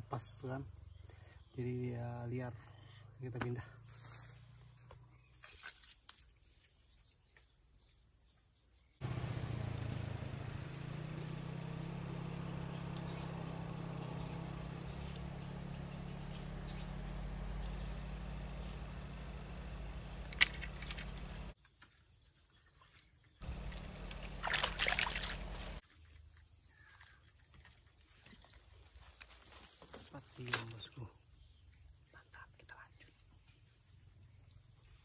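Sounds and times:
insects droning: 0.0 - 6.3, 8.0 - 21.6, 23.4 - 25.8, 26.6 - 35.0
low outdoor rumble: 9.0 - 21.6, 23.4 - 25.8
sharp click: 20.2 - 21.3.

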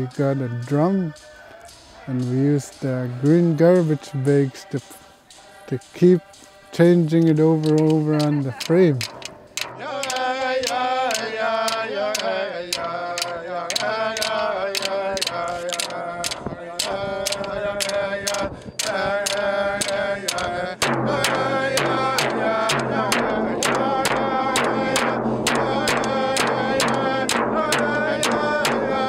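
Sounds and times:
group chanting: 0.0 - 29.0
frame drums beating: 7.0 - 29.0.

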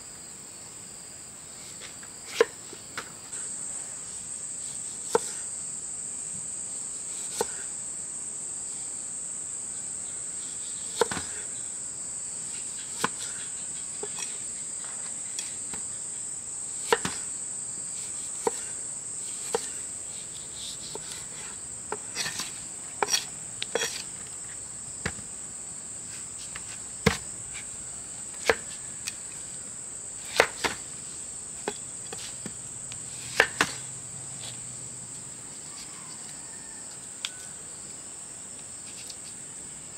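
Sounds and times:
insects droning: 0.0 - 39.9.

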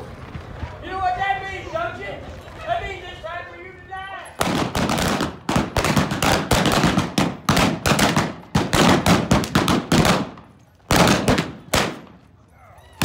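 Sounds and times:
blank gunshots: 4.4 - 12.2.

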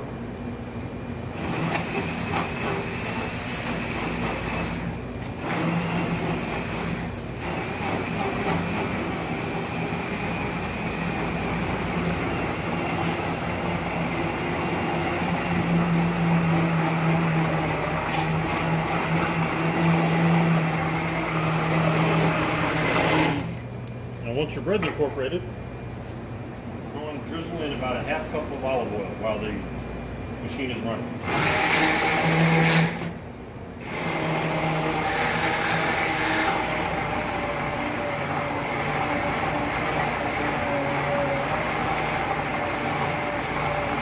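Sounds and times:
immersion blender motor humming: 31.3 - 33.0, 33.8 - 44.0.

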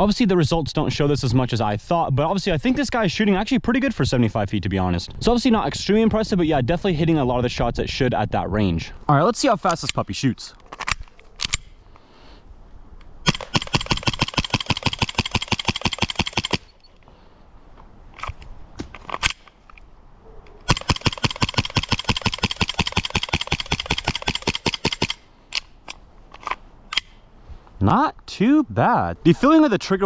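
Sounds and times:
airsoft pistol shots: 13.3 - 16.6, 20.7 - 25.2.

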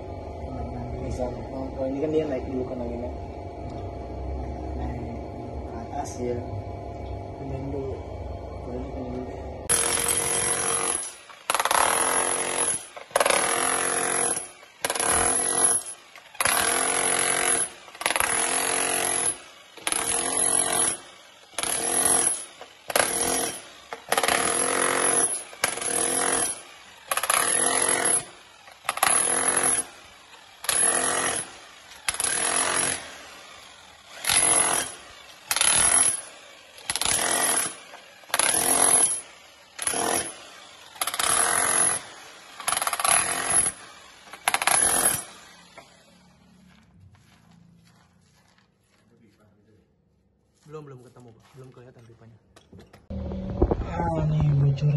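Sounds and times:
demolition hammer chipping tile: 9.7 - 33.5, 34.1 - 45.9.

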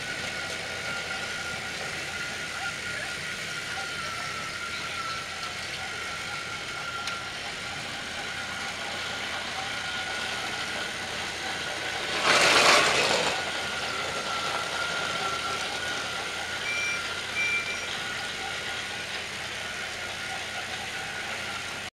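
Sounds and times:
toy train motors whirring: 0.0 - 21.9
loud noisy burst: 11.8 - 14.7
short high beeps: 16.6 - 18.0.

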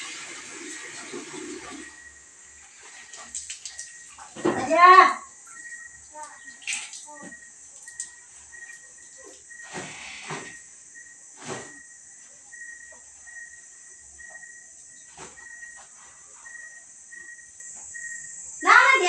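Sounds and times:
wet laundry swishing and splashing: 2.6 - 5.0, 6.4 - 8.1.

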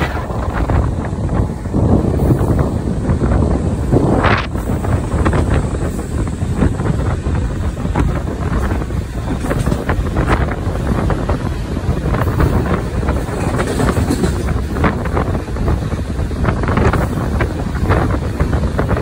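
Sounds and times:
train wheels on rails: 0.0 - 19.0
wind buffeting microphone: 0.0 - 19.0
clicks and clatter: 13.2 - 14.6.

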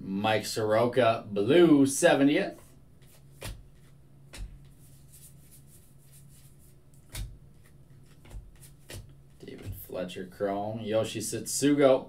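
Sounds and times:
faint low hum: 0.0 - 12.0
cards clicking and tapping: 3.0 - 5.2, 6.3 - 9.9.

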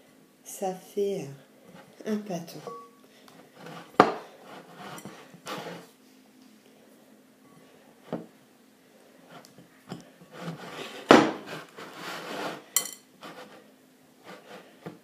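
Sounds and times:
glass bowl clink: 2.6 - 3.0, 12.8 - 13.0.

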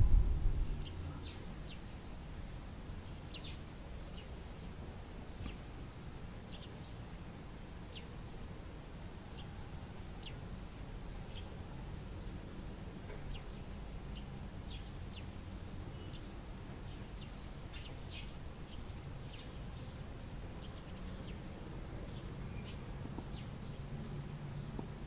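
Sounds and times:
brief low rumble: 0.0 - 1.4.

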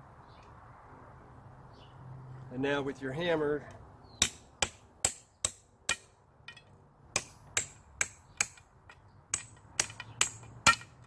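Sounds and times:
hammer striking a bolt: 4.2 - 11.0.

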